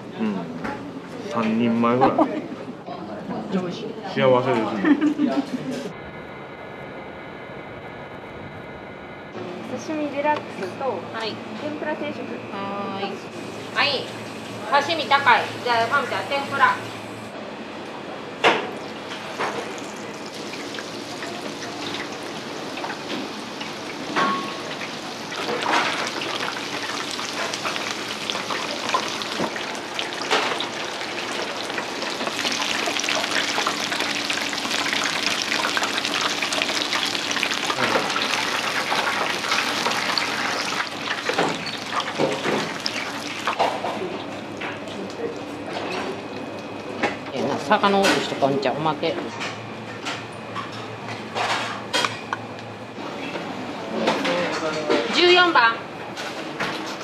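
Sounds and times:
deep-frying oil sizzling: 18.6s - 45.5s.

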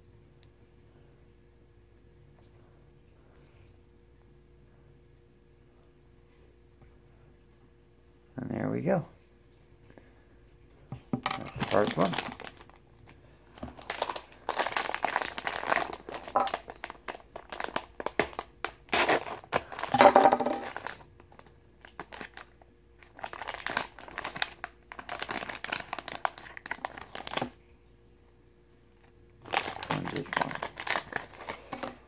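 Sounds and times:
foil packet crinkling: 11.4s - 27.6s, 29.0s - 32.0s.

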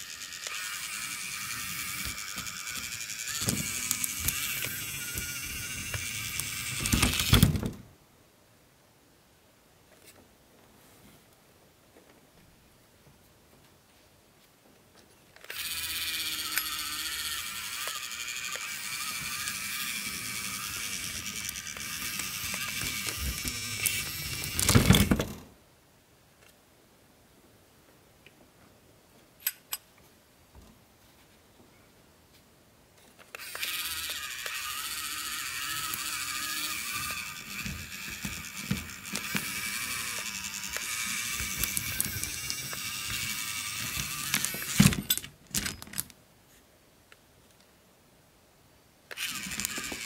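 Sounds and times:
electric motor whirring: 0.0s - 7.4s, 15.5s - 25.1s, 33.3s - 45.0s, 49.1s - 50.0s.

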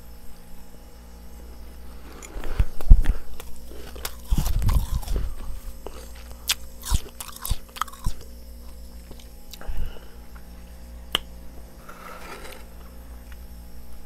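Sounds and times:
crunching ice crystals: 3.4s - 9.6s.

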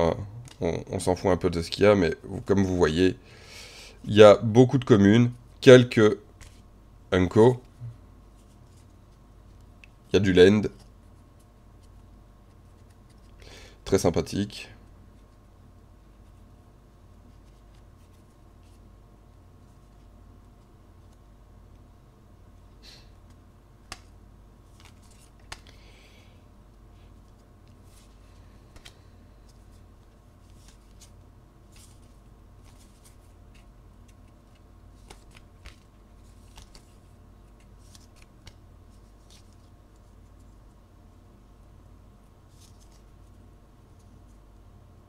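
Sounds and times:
faint low hum: 0.0s - 45.0s
cards rustling and snapping: 11.8s - 13.4s, 23.2s - 25.8s, 27.1s - 40.8s, 42.5s - 43.4s.

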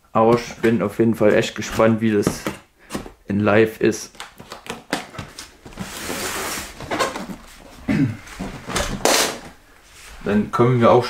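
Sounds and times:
cardboard box rustling and scraping: 5.2s - 7.8s.

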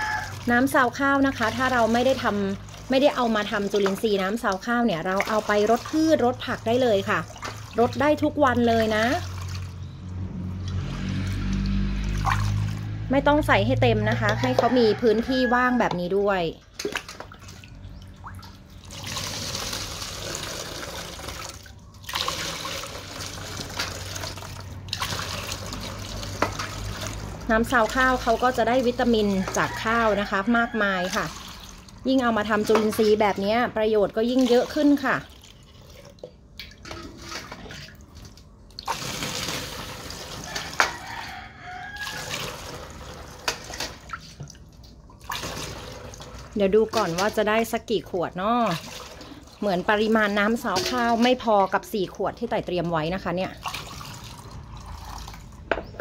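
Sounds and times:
rooster crowing: 0.0s - 0.5s, 14.2s - 15.9s, 29.2s - 31.3s, 40.4s - 42.6s
water pouring and splashing: 0.0s - 56.0s.

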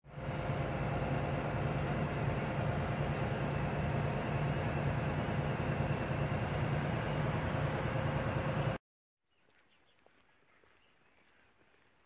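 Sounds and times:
bus cabin rumble: 0.1s - 8.8s.

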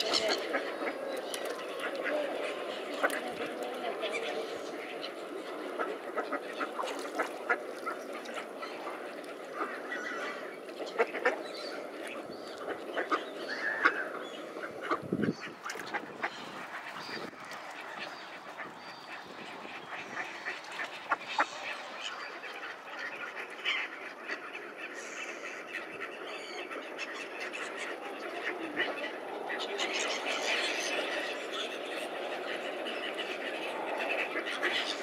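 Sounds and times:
water splashing: 0.0s - 14.0s
ducks quacking: 0.0s - 35.0s.

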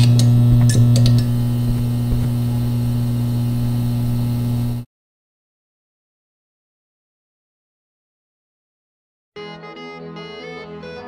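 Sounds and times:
crackling clicks: 0.0s - 2.8s
neon sign electrical hum: 0.0s - 4.8s.

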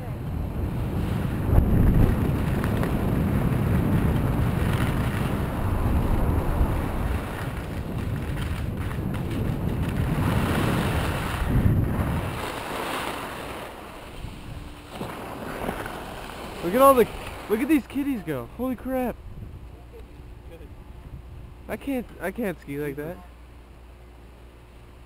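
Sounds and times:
wind buffeting microphone: 0.0s - 22.2s
skis scraping over snow: 0.8s - 19.1s.

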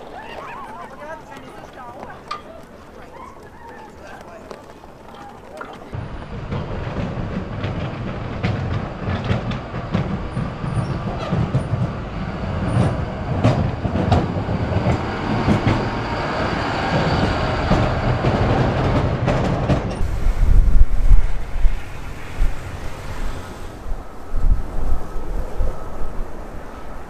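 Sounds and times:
plow blade scraping and clanking: 0.6s - 24.1s
loader engine rumble: 4.4s - 25.1s.

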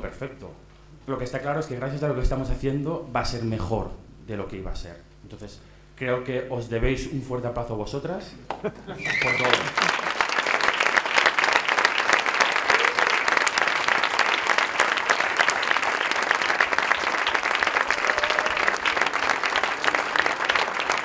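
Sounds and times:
crowd applauding: 9.0s - 21.0s.

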